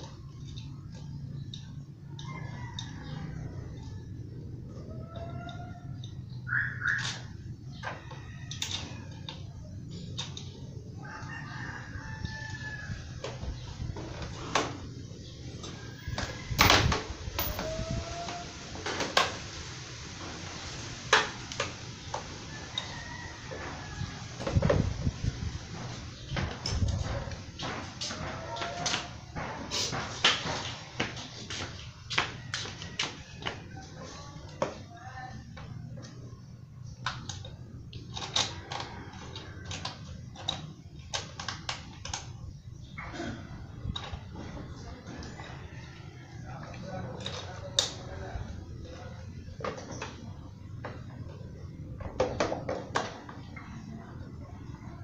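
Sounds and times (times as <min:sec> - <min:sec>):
clicks and knocks of hands working: 0:37.0 - 0:42.4.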